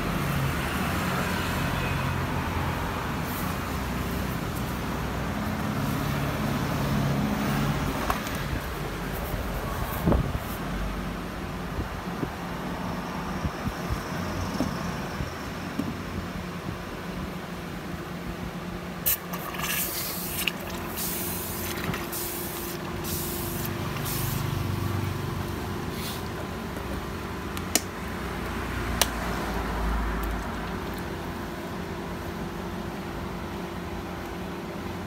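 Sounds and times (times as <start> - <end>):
hissing splashing bursts: 19.0 - 24.7.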